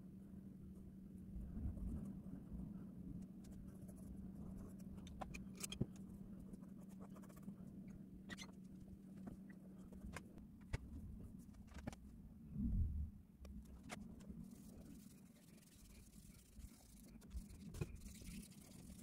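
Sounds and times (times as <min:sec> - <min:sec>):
steady low hum: 0:00.0 - 0:19.0
drawing on paper scratching: 0:03.3 - 0:10.2, 0:13.9 - 0:19.0.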